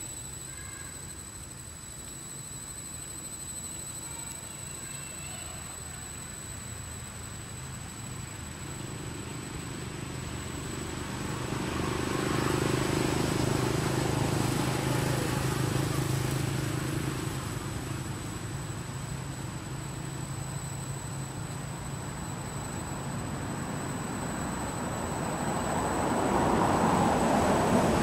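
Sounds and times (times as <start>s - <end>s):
vehicle passing by: 10.9s - 18.2s, 23.4s - 28.0s.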